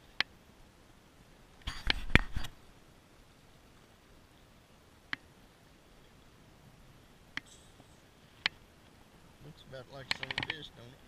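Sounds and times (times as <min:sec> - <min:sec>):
faint hiss: 0:00.0 - 0:11.0
sharp clicks and knocks: 0:10.0 - 0:10.7.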